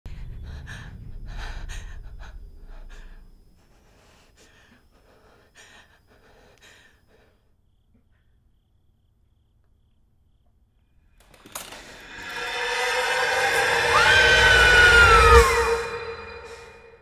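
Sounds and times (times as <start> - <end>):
low rumble: 0.1 - 3.6, 11.7 - 17.0.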